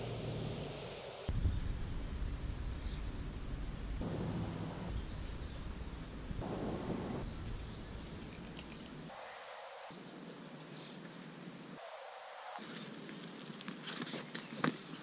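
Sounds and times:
steady hiss: 0.0s - 10.2s, 11.4s - 13.6s
wind rumble on microphone: 1.3s - 9.0s.

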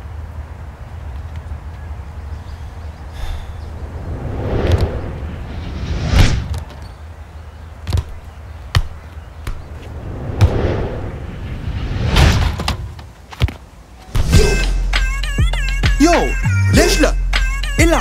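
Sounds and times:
whoosh: 3.2s - 6.7s, 9.6s - 12.9s
football thumps: 7.9s - 9.7s.

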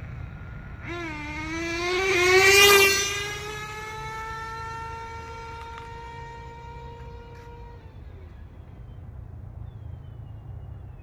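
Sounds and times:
rc car engine screaming: 0.8s - 8.2s.

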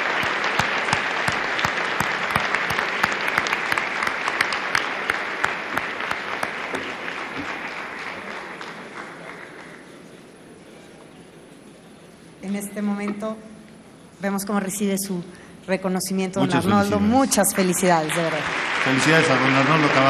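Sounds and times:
audience applauding: 0.0s - 10.3s, 17.5s - 20.0s.

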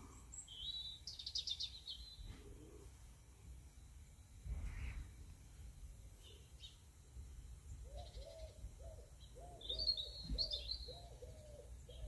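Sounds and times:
small bird chirping: 0.1s - 2.6s, 6.2s - 6.9s, 7.7s - 12.0s.

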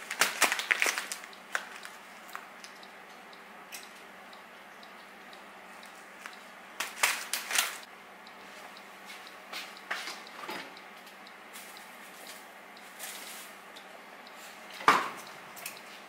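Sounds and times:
foil pouch rustling: 0.0s - 2.0s.

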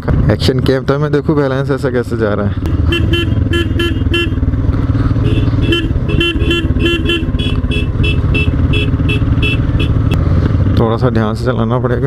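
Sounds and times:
motorcycle engine running: 0.0s - 12.0s
vehicle horn short beeps: 2.8s - 4.4s, 5.2s - 10.1s.

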